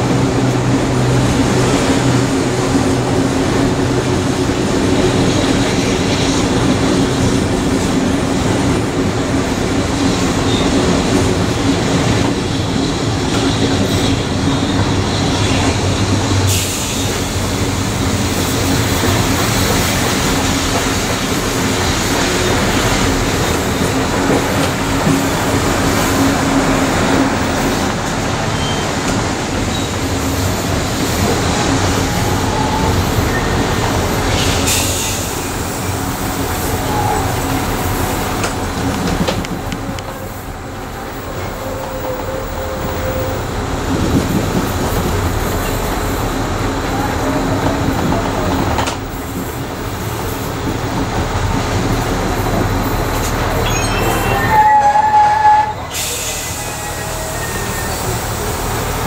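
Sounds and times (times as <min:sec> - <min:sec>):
train wheels rumbling on rails: 0:00.0 - 0:59.0
high-pitched wheel squeal: 0:53.6 - 0:58.2.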